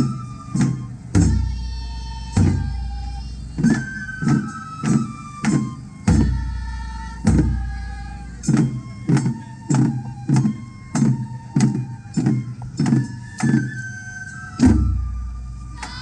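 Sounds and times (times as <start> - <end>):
high flute melody: 0.0 - 16.0
taiko drums beaten in rhythm: 0.0 - 16.0
deep drum booms: 0.1 - 3.0.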